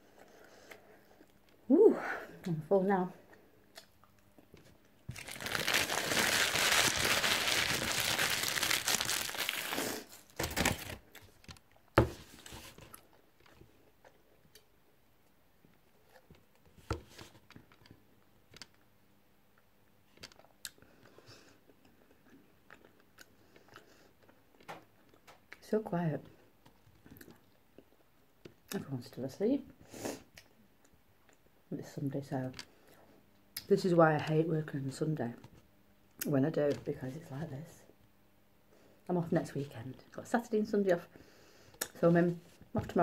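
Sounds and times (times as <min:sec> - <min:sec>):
paper packaging crumpling: 0:05.1 - 0:11.4.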